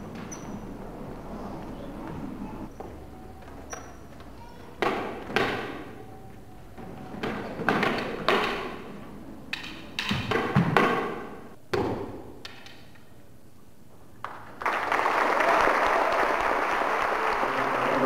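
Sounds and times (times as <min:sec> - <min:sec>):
sticks clacking: 0:09.5 - 0:10.5.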